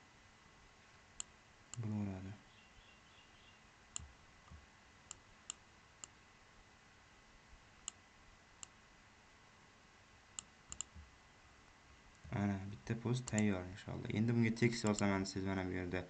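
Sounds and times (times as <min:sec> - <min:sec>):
computer mouse clicking: 0:10.4 - 0:11.0, 0:13.2 - 0:13.5, 0:14.8 - 0:15.1.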